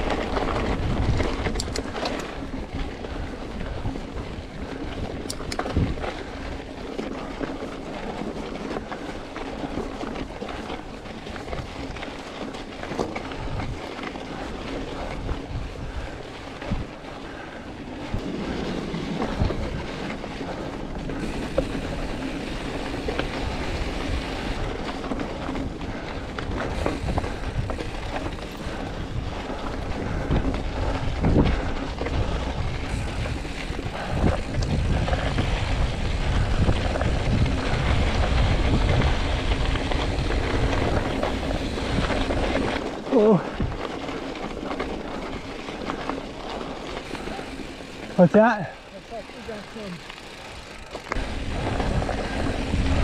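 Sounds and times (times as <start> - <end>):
wind on microphone: 0.0 - 6.6, 13.3 - 46.0, 50.4 - 53.0
bike rattling and knocking: 0.0 - 53.0.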